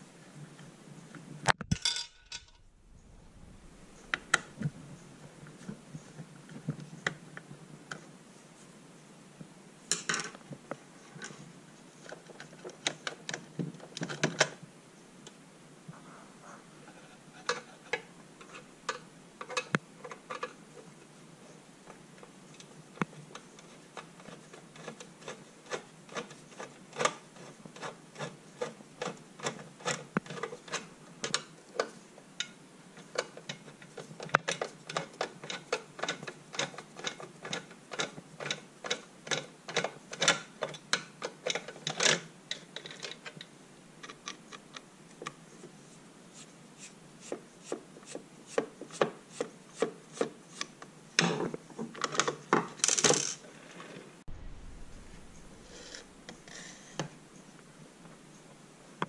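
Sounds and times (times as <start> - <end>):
plastic parts rubbing and scraping: 15.9 - 21.0, 22.5 - 32.1, 54.9 - 58.3.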